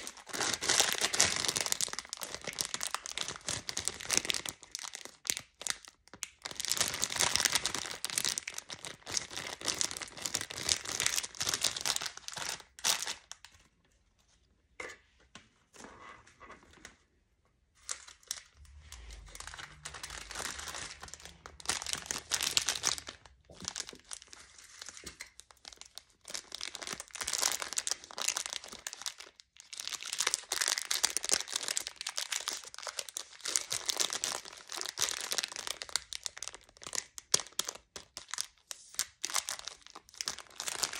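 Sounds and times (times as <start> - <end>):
plastic bags crinkling: 0.0 - 13.6, 17.8 - 40.9.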